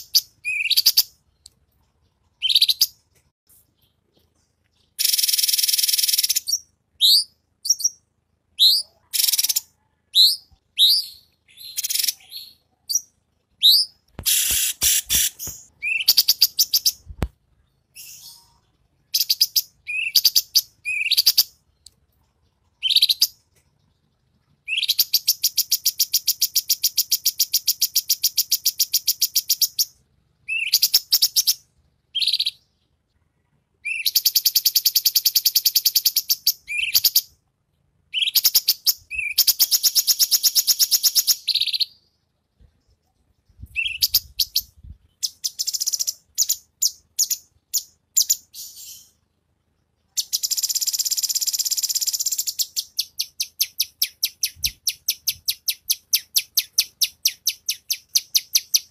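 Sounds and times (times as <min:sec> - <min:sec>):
songbirds whistling: 0:00.0 - 0:01.8, 0:04.8 - 0:08.0, 0:08.6 - 0:17.3, 0:17.9 - 0:22.0, 0:24.6 - 0:32.7, 0:33.8 - 0:37.3, 0:38.1 - 0:42.1, 0:43.4 - 0:49.2, 0:50.2 - 0:58.9
bird rapid trill: 0:04.9 - 0:08.0, 0:08.6 - 0:17.1, 0:38.1 - 0:42.0, 0:50.1 - 0:58.9.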